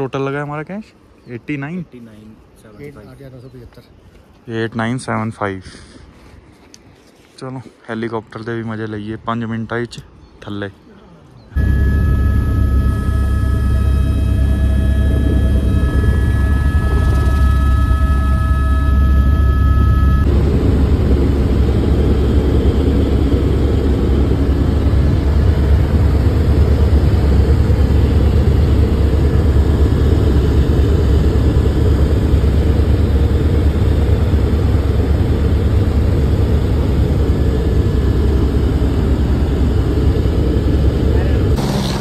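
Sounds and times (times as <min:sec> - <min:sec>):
helicopter engine and rotor rumble: 0:11.4 - 0:42.0.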